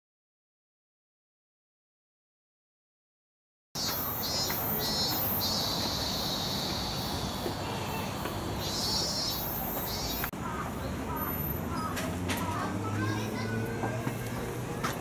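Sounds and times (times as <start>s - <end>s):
cicadas buzzing: 3.8s - 13.8s
outdoor background noise: 3.8s - 15.0s.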